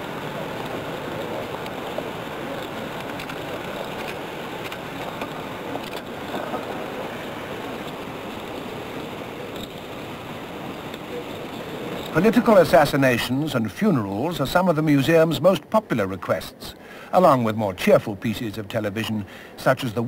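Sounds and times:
noisy archive ambience: 0.0 - 20.0
faint clicks: 0.5 - 6.9.

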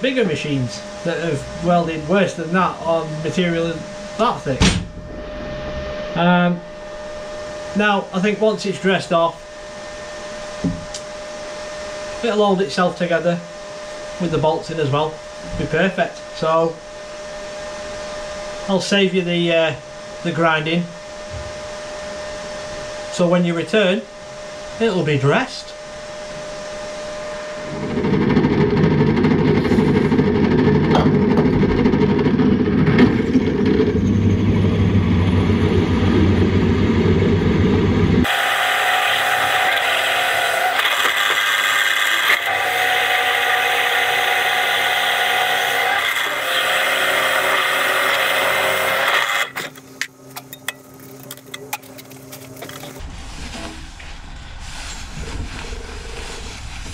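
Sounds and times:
loud low-pitched noise: 0.0 - 8.1, 27.2 - 38.3
pedestal drill cutting steel: 38.2 - 49.8.

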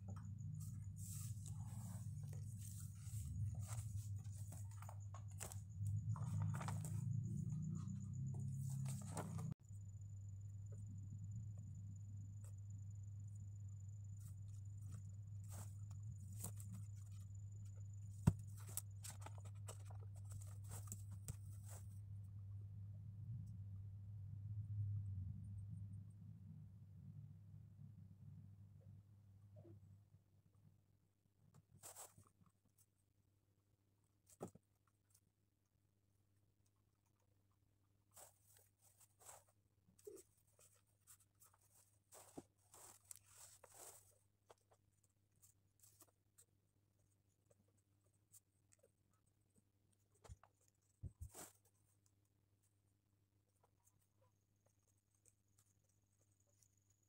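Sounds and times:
steady low hum: 0.0 - 30.3.

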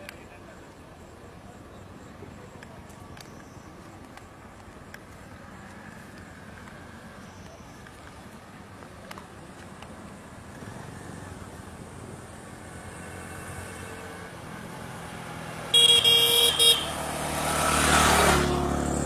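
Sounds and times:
vehicle passing close by: 10.4 - 19.0
short horn toots: 15.8 - 16.9.

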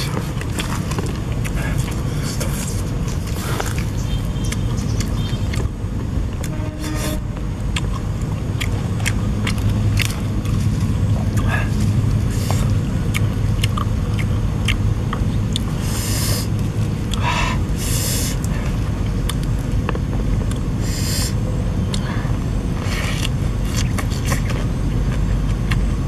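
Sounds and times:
lettuce crunching and rustling: 0.0 - 5.7, 6.4 - 15.9, 22.8 - 26.0
loud low rumble: 0.0 - 26.0.

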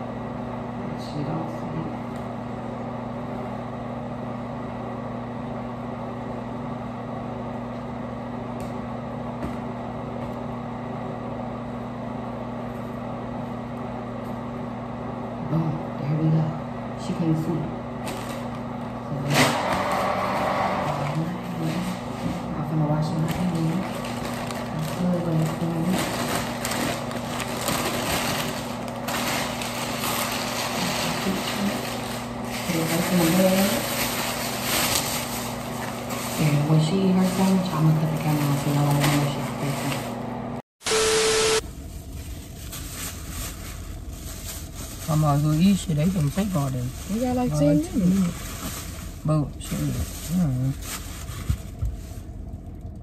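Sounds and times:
ventilation fan humming: 0.0 - 53.0
wrapper paper crinkling: 18.0 - 18.6, 23.1 - 40.0, 41.8 - 52.5.

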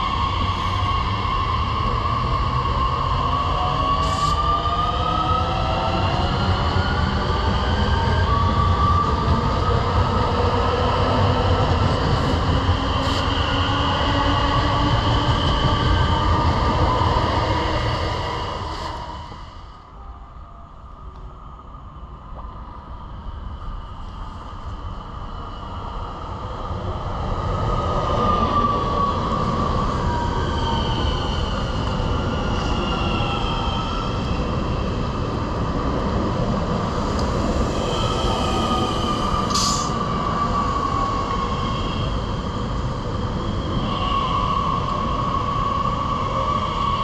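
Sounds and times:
train rumbling: 0.0 - 20.2, 20.8 - 47.0.

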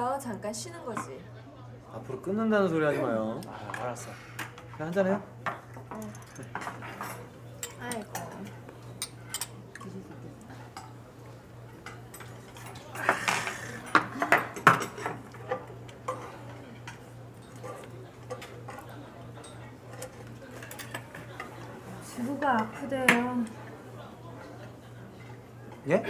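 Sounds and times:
chopsticks and dishes clinking: 3.5 - 26.0.

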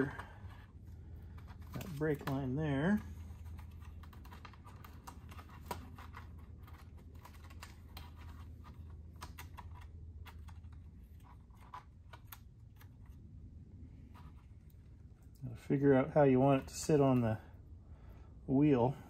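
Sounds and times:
velcro clicks and crackles: 3.2 - 13.2.

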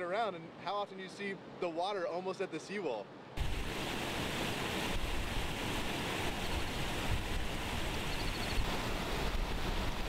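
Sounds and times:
rushing water: 0.0 - 10.0
wind buffeting microphone: 3.4 - 10.0.

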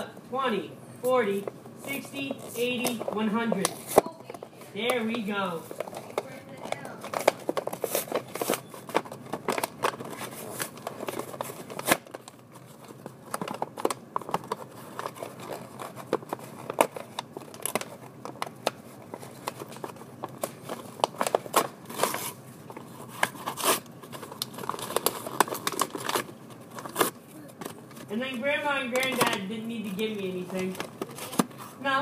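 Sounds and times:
packaging crinkling: 2.2 - 28.1
paper tearing: 23.1 - 23.8.

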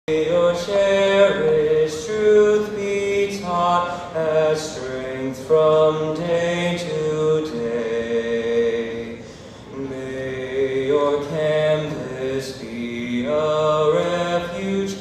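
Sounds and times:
choir singing chant-like harmony: 0.2 - 15.0.

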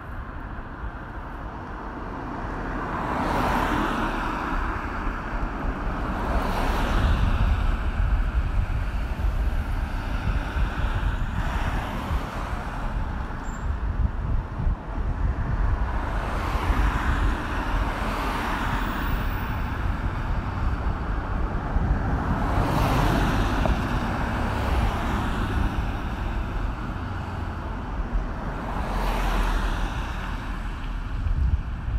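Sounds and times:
road traffic: 0.0 - 31.9
vehicles passing: 0.0 - 31.9.

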